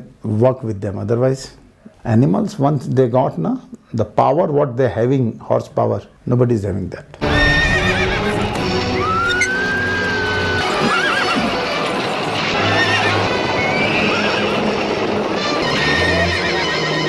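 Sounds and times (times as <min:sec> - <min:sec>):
background music: 0:07.2 - 0:17.0
hoofbeats: 0:07.2 - 0:17.0
horses whinnying: 0:07.2 - 0:17.0.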